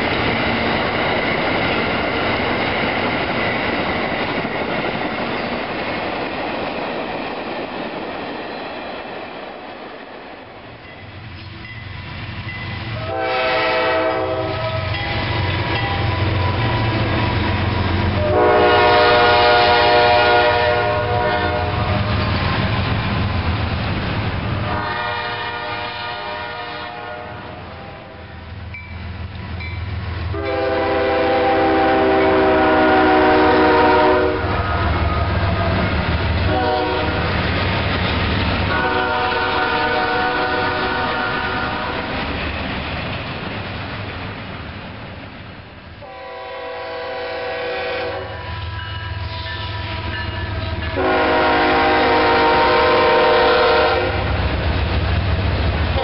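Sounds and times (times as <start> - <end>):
rail cars clattering: 0.0 - 56.0
train rumble: 0.0 - 56.0
locomotive air horn blasts: 13.0 - 17.5, 18.1 - 22.3, 24.6 - 28.3, 30.3 - 35.7, 36.5 - 37.3, 38.7 - 42.0, 46.0 - 54.3.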